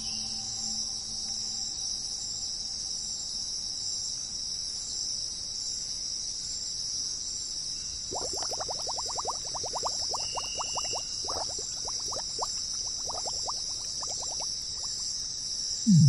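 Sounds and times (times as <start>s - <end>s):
insect chorus chirring: 8.1s - 15.1s.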